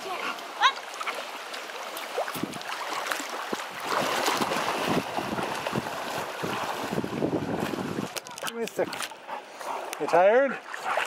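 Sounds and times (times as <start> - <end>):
steady rush of water: 0.0 - 11.0
water splashing and sloshing: 0.0 - 11.0
wind buffeting microphone: 3.8 - 8.2.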